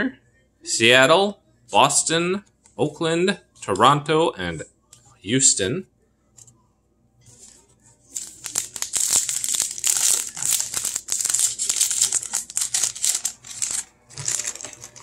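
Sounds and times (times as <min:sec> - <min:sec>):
cards being pulled out: 0:07.4 - 0:15.0
foil wrapper crinkling and tearing: 0:08.1 - 0:15.0.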